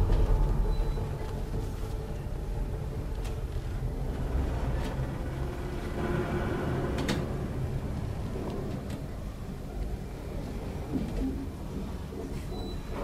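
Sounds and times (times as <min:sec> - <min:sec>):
low steady interior rumble: 0:00.0 - 0:13.0.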